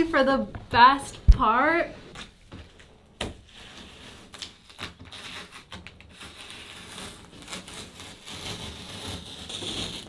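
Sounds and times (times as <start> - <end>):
tape peeling off wall crackling: 2.8 - 10.0.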